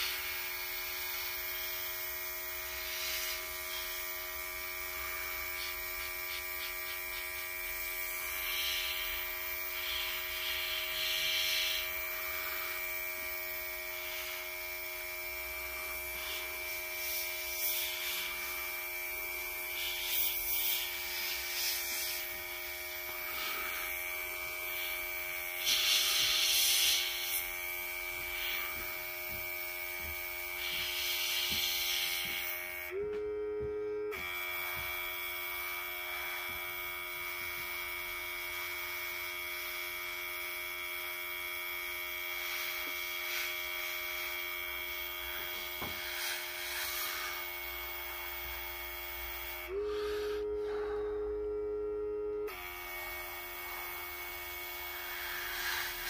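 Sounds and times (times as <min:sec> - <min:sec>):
airbrush spraying hissing bursts: 0:00.0 - 0:32.8, 0:42.3 - 0:51.0, 0:54.8 - 0:56.0
small compressor humming: 0:00.0 - 0:56.0.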